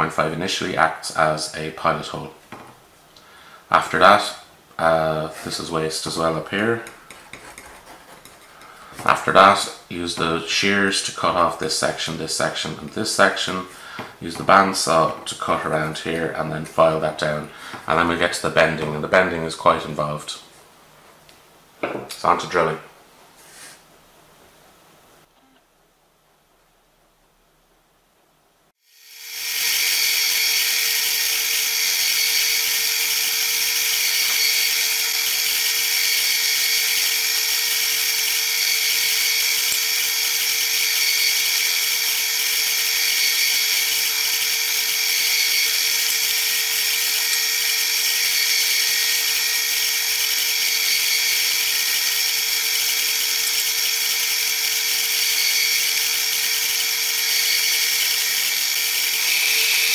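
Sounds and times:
pillar drill whining: 0:28.9 - 0:59.9.

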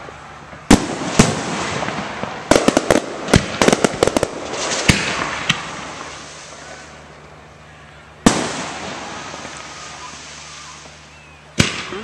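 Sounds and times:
fireworks bangs: 0:00.0 - 0:07.0, 0:08.2 - 0:12.0
steady hiss: 0:00.0 - 0:12.0
fireworks cracks and pops: 0:00.6 - 0:06.6.

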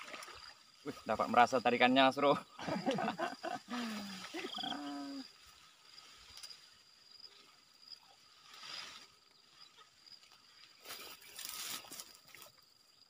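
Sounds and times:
high-pitched insect drone: 0:00.5 - 0:13.0
drawn-out voice: 0:03.7 - 0:05.2.

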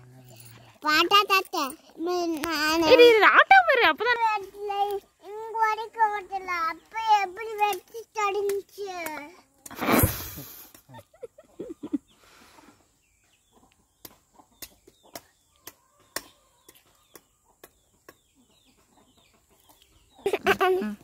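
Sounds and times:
chickens clucking: 0:10.4 - 0:21.0.

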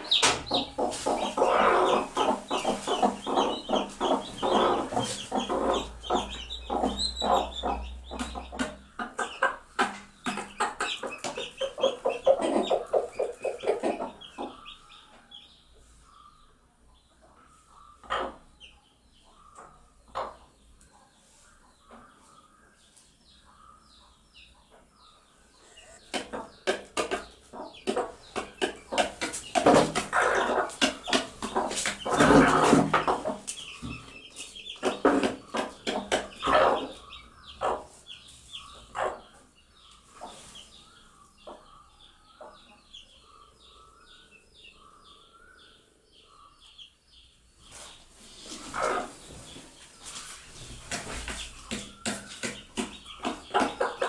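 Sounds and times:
beaks tapping plastic plates: 0:00.0 - 0:14.5, 0:25.8 - 0:37.2, 0:50.7 - 0:54.0
hens clucking: 0:00.0 - 0:15.6, 0:17.2 - 0:20.6, 0:24.6 - 0:43.8, 0:47.7 - 0:54.0
chicks peeping: 0:00.0 - 0:54.0.

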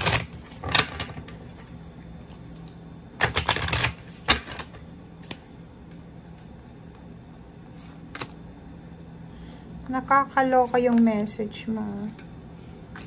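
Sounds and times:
cards being shuffled by hand: 0:00.0 - 0:00.7, 0:01.4 - 0:08.4.

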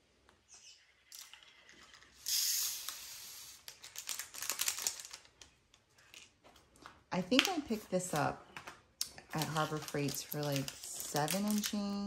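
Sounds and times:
plastic packet crinkling: 0:02.8 - 0:08.4, 0:09.0 - 0:12.0.

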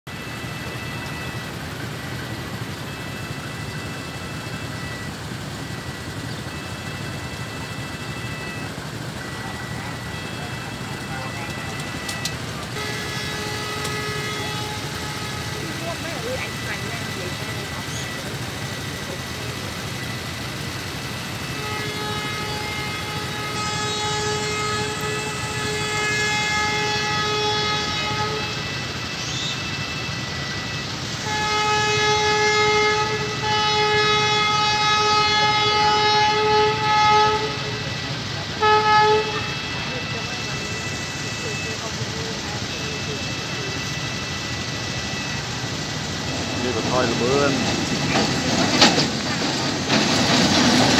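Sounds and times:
train horn long note: 0:00.1 - 0:05.1, 0:05.8 - 0:50.9
idling motorbike engines: 0:00.1 - 0:50.9
level crossing warning alarm: 0:00.1 - 0:50.9
road traffic rumble: 0:00.1 - 0:50.9.

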